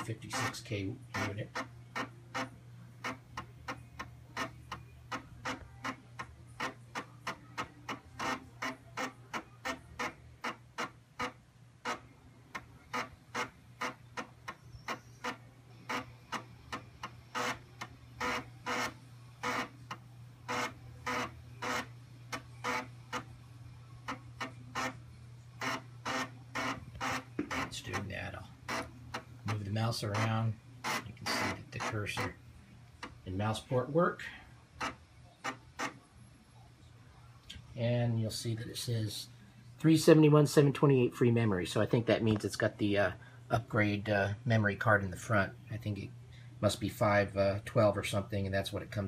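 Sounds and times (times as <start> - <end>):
floppy drive ticking: 0.0 - 36.0
steady low hum: 0.0 - 49.0.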